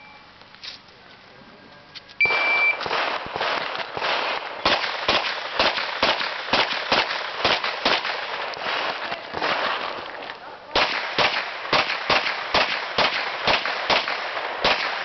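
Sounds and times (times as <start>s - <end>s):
shot timer beep: 0.0s - 0.3s, 2.2s - 2.8s
pistol shots: 2.2s - 15.0s.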